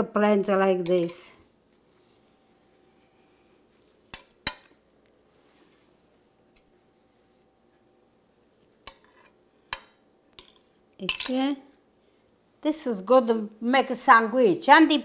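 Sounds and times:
cutlery clinking on pan and plate: 8.8 - 11.3.

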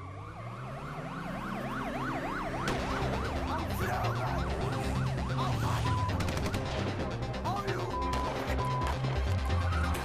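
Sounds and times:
siren yelping: 0.0 - 6.3.

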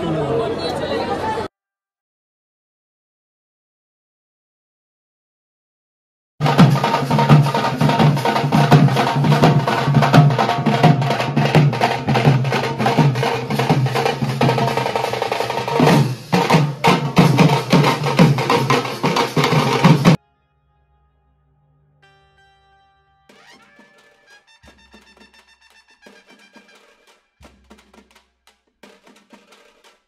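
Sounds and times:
loud fast drumming: 6.4 - 20.2, 23.3 - 30.0.

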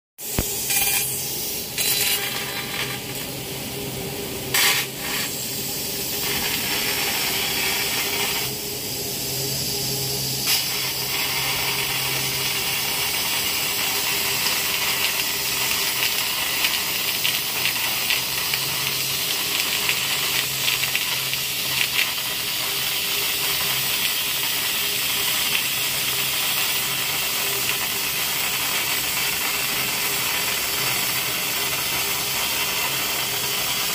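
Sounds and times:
laser cutter hissing: 0.2 - 33.9
low machine hum: 0.3 - 14.1.

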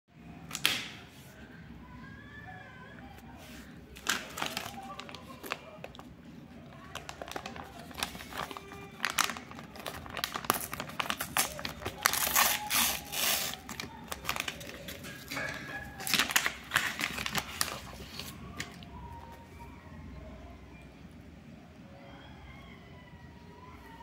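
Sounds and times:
plastic mailer pouch crinkling and tearing: 4.0 - 6.1, 6.7 - 18.8.

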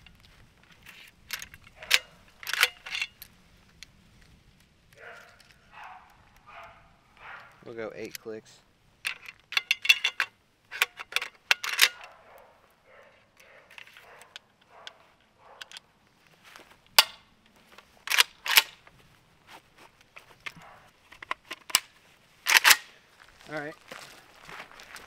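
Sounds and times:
sharp metal clicks: 1.0 - 3.3, 9.0 - 12.2, 16.9 - 18.8, 22.5 - 22.9.

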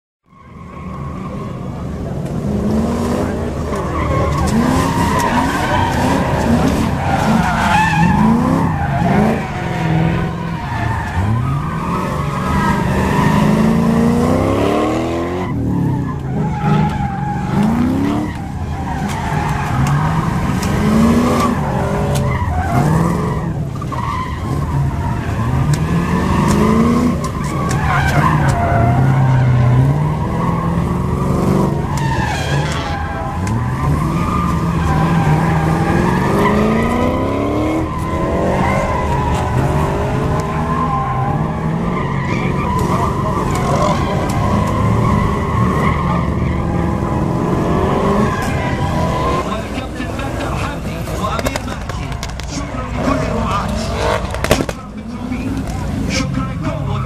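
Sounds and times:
tyres squealing and skidding: 0.3 - 57.0
car engine revving: 0.7 - 57.0.

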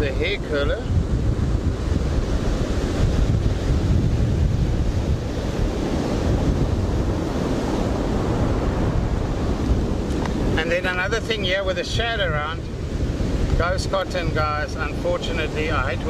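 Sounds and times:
ocean surf breaking: 0.0 - 16.0
wind buffeting microphone: 0.0 - 16.0.

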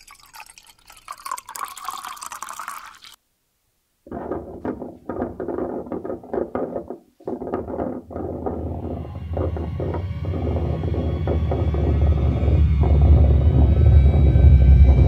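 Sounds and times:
water being poured: 0.0 - 3.2
low rattling clatter: 4.1 - 15.0.

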